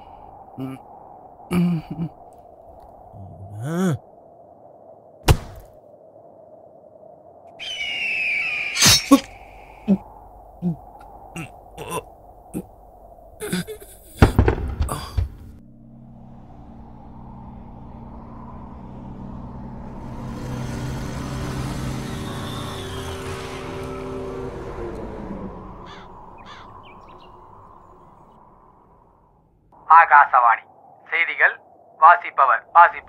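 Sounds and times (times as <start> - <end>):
short high calls: 7.6 - 10.0
small motorcycle engine running: 20.0 - 24.7.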